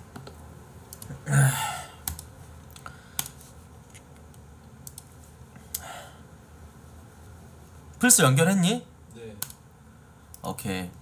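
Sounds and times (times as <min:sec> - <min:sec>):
keyboard and mouse clicks: 0:02.0 - 0:03.4, 0:04.2 - 0:05.8.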